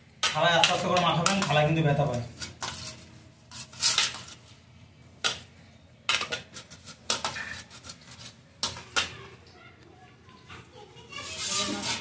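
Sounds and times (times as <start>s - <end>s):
palm rubbing on steel plate: 11.2s - 12.0s.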